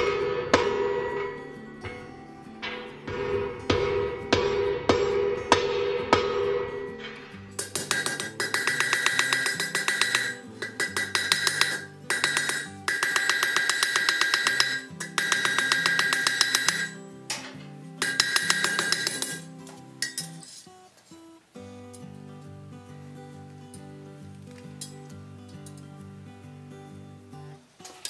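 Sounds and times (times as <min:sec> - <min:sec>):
hammer striking iron on anvil: 0:00.0 - 0:20.4
anvil ringing: 0:00.0 - 0:20.5
background music: 0:00.0 - 0:28.0.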